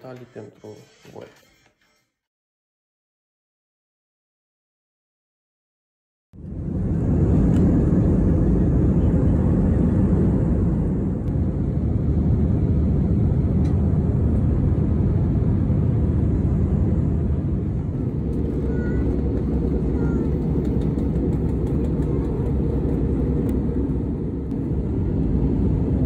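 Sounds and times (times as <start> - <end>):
jet engine cabin rumble: 6.4 - 26.0.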